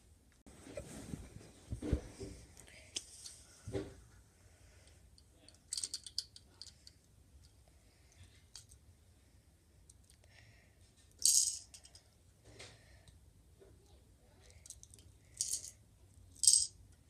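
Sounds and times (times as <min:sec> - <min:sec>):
plastic toy pieces clicking: 0:05.5 - 0:06.9.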